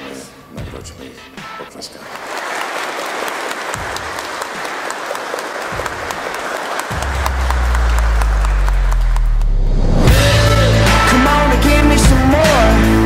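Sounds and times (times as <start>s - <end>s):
congregation applauding: 2.0s - 9.7s.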